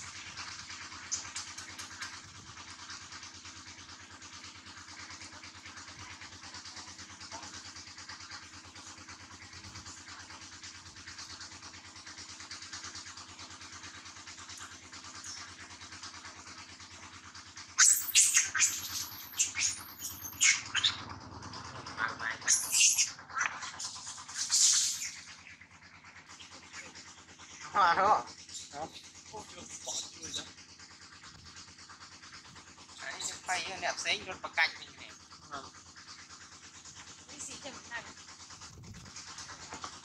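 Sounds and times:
baby monkey shrieking: 17.8 - 21.1, 22.0 - 25.5, 28.5 - 30.5.

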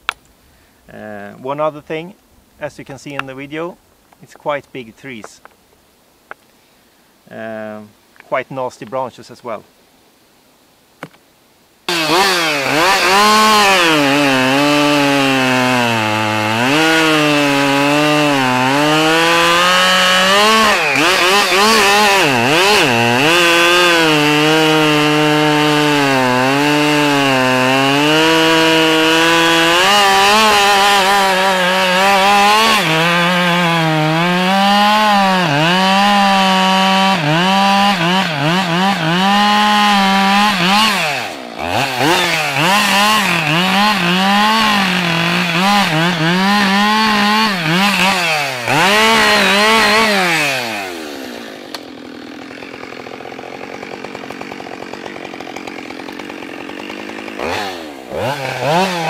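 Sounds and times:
chainsaw cutting log: 11.9 - 59.0.

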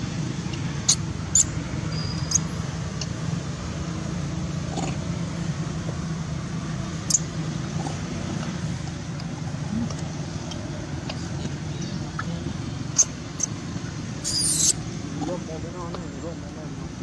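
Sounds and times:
baby monkey squeaking: 0.8 - 2.6, 7.0 - 7.9, 11.8 - 13.6, 14.2 - 14.8.

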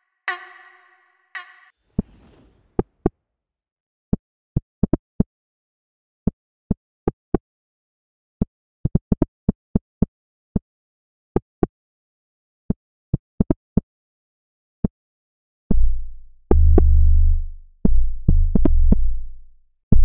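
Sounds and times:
held synth tone: 0.0 - 1.7
brief whoosh: 1.8 - 2.8.

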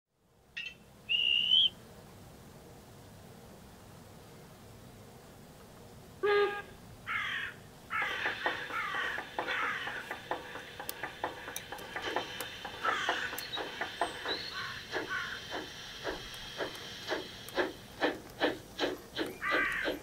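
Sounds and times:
bird calling with harsh cries: 0.6 - 1.8, 6.2 - 11.4, 12.0 - 17.7, 18.4 - 20.0
model steam locomotive chuffing: 7.9 - 20.0.

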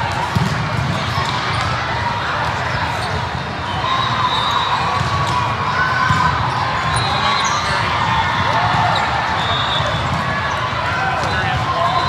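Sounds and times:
volleyballs being hit and bouncing: 0.1 - 2.6, 4.8 - 9.2
shoes squeaking on court floor: 6.1 - 7.9.

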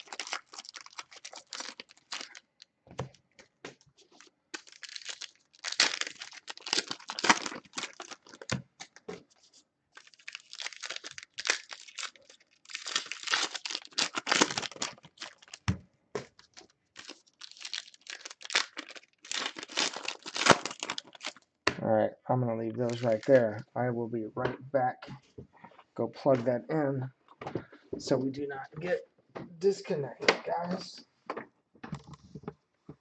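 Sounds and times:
foil wrappers tearing and crinkling: 0.0 - 2.4, 4.0 - 9.0, 10.0 - 15.6, 16.4 - 21.4, 22.9 - 23.4.

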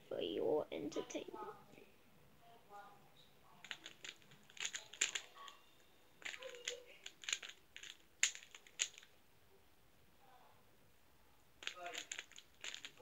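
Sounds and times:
plastic puzzle cube clicking: 3.6 - 5.3, 6.2 - 9.1, 11.6 - 13.0.

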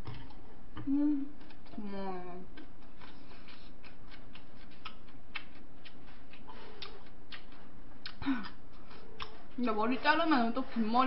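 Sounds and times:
chewing mouth clicks: 2.5 - 9.6.

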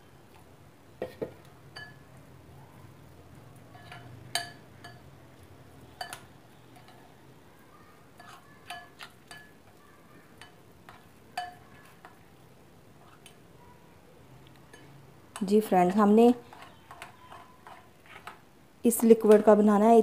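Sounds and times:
spoon clinking against glass bowl: 1.7 - 2.1, 3.7 - 5.1, 5.9 - 7.1, 8.2 - 9.7, 10.4 - 12.2, 14.7 - 15.5.

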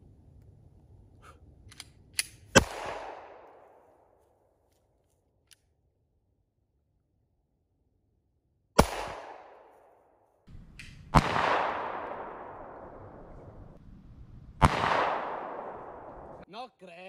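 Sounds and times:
pistol shots with echo: 2.5 - 3.8, 8.8 - 9.9, 10.5 - 13.6, 14.6 - 16.4.

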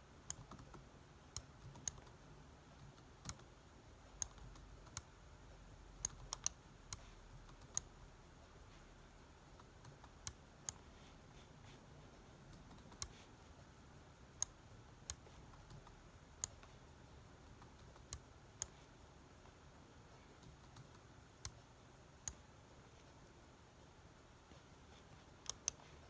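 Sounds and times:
faint low room hum: 0.0 - 26.0
computer mouse clicking: 0.2 - 3.6, 4.2 - 5.2, 6.0 - 8.0, 9.5 - 11.0, 12.4 - 13.3, 14.3 - 16.8, 17.4 - 19.6, 20.3 - 22.6, 24.5 - 26.0.

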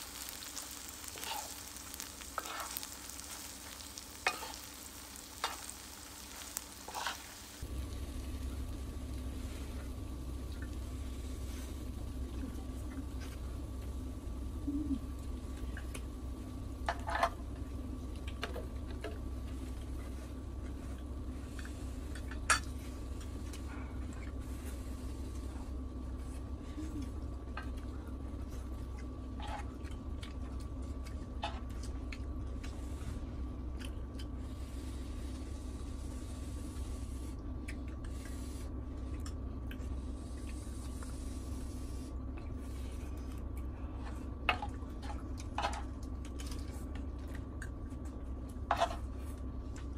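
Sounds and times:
utensils scraping grill pan: 0.0 - 7.6
steady low hum: 0.0 - 49.9.

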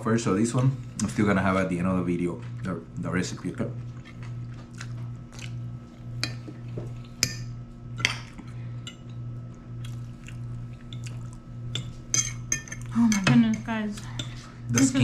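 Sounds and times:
steady low hum: 0.0 - 15.0
forks clinking on plates: 11.7 - 15.0.

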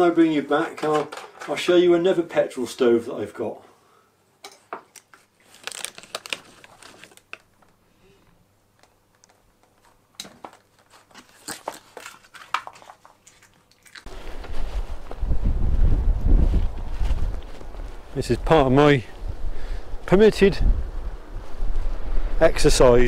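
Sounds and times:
crunching crisp biscuit: 5.0 - 7.5, 10.9 - 14.2
wind rumble on microphone: 14.1 - 23.0.

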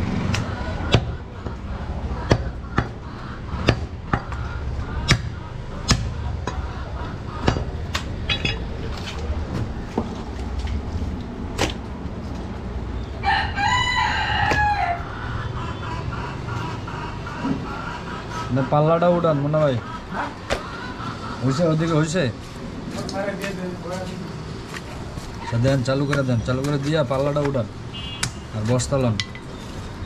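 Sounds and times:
cleaver chopping meat on wood: 2.3 - 3.0, 3.6 - 4.4, 5.0 - 6.6, 14.5 - 14.7
rooster crowing: 13.2 - 15.5.

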